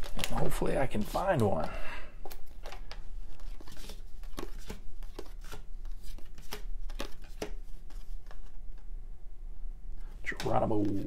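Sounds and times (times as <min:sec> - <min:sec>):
cards flicking: 0:02.2 - 0:08.6.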